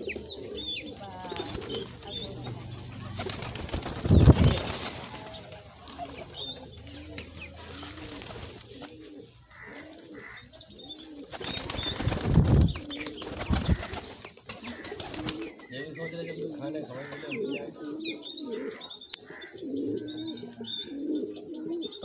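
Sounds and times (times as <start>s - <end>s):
pigeons cooing: 0.0s - 22.0s
wings flapping: 1.2s - 6.4s, 7.2s - 9.1s, 11.2s - 15.8s.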